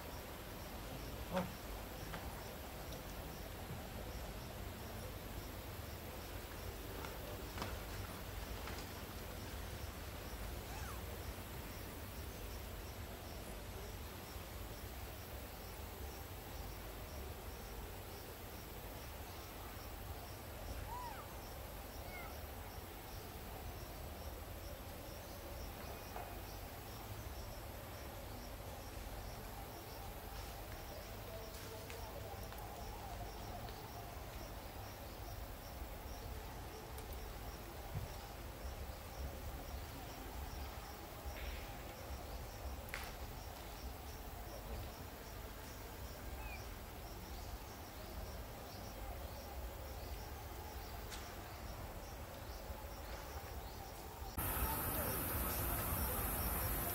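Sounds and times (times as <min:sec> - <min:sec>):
insects chirping: 0:00.0 - 0:56.9
insect chirping in high pulses: 0:54.3 - 0:56.9.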